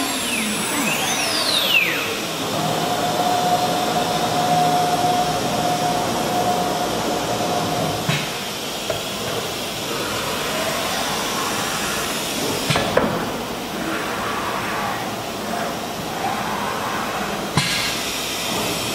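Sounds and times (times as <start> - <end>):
router spindle whine: 0.0 - 8.0.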